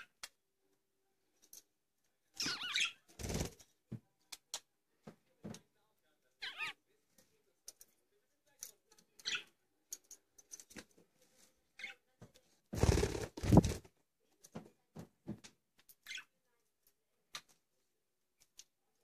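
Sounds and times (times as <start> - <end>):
wings flapping: 12.8 - 13.9.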